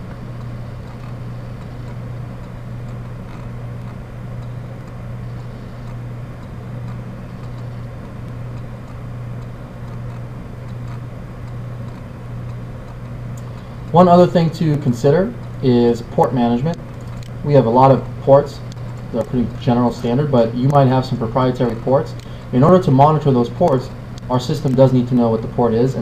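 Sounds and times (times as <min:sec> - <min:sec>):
constant hiss: 0:00.0 - 0:26.0
low hum: 0:00.0 - 0:26.0
faint clicks: 0:00.1 - 0:14.0, 0:16.7 - 0:17.4, 0:21.6 - 0:22.5.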